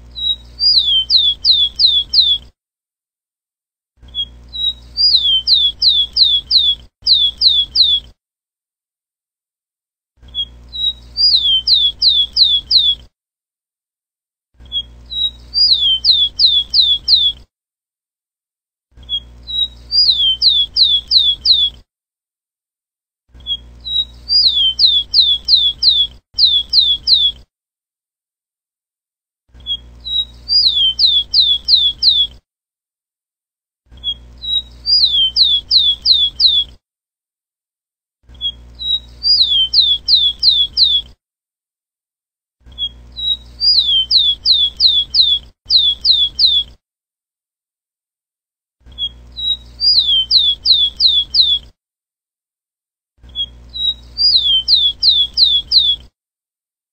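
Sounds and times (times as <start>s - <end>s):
sparrow singing: 0.2s - 2.4s, 4.1s - 8.1s, 10.3s - 13.0s, 14.7s - 17.4s, 19.0s - 21.7s, 23.4s - 27.4s, 29.6s - 32.4s, 34.0s - 36.7s, 38.4s - 41.1s, 42.7s - 46.7s, 48.9s - 51.6s, 53.3s - 56.0s.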